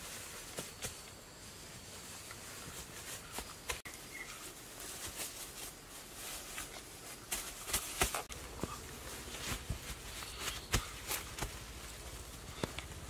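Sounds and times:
hands patting turf onto soil: 2.2s - 13.0s.

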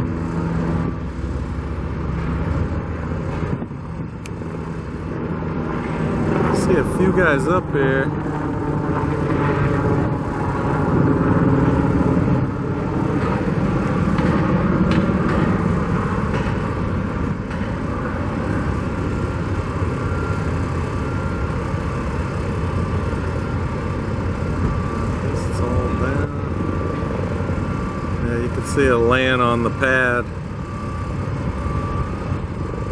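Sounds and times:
vehicles passing: 0.0s - 21.0s
road traffic rumble: 0.0s - 32.9s.

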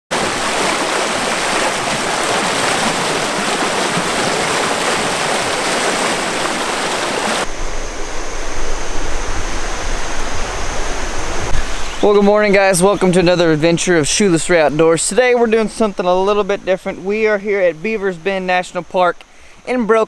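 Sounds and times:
whitewater rapids rushing: 0.1s - 7.5s.

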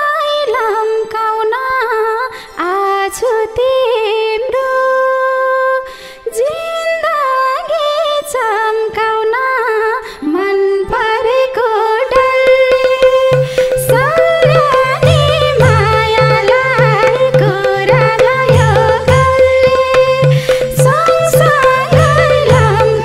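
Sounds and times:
woman singing folk melody: 0.0s - 23.0s
hand drum beats: 12.2s - 23.0s.

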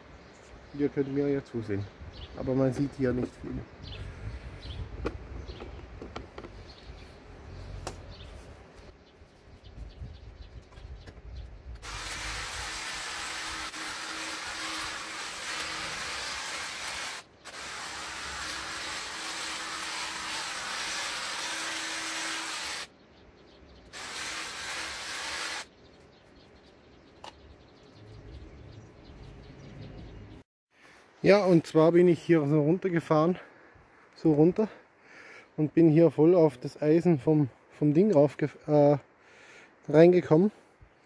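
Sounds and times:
hedge trimmer cutting hedge: 11.8s - 22.9s, 24.0s - 25.7s.

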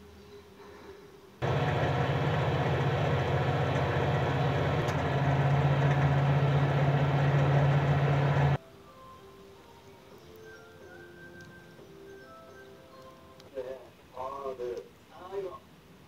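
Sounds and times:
microwave oven humming: 1.4s - 8.6s.

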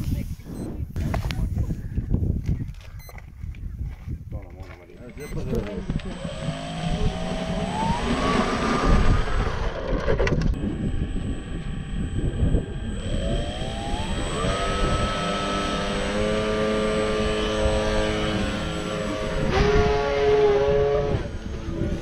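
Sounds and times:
wind rumble on microphone: 0.0s - 22.0s
electric motor and propeller whine: 5.4s - 22.0s.

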